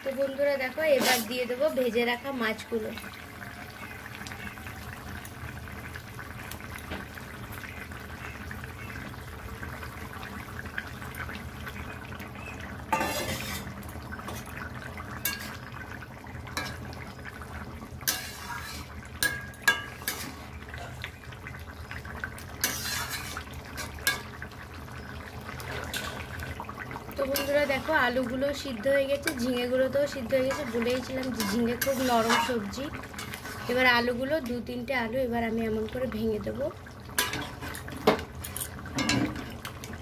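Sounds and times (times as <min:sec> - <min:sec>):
curry bubbling: 0:00.0 - 0:40.0
metal spatula scraping in pan: 0:00.8 - 0:01.5, 0:12.9 - 0:14.5, 0:15.2 - 0:15.7, 0:18.0 - 0:21.1, 0:22.6 - 0:24.4, 0:25.6 - 0:26.6, 0:27.2 - 0:28.3, 0:30.4 - 0:33.9, 0:37.2 - 0:39.4.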